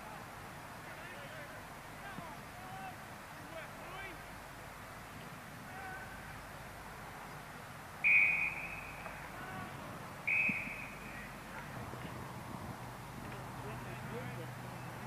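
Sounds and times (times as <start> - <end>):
shrill whistle blasts: 8.0 - 9.0, 10.2 - 11.1.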